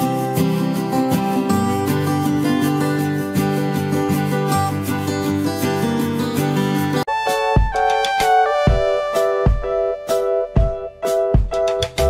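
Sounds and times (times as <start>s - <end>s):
held keyboard notes: 0.0s - 12.0s
bass drum thump: 7.6s - 9.9s.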